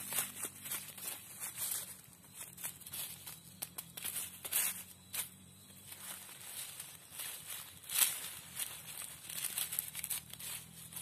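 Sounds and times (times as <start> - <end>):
crackles and clicks: 7.9 - 11.0.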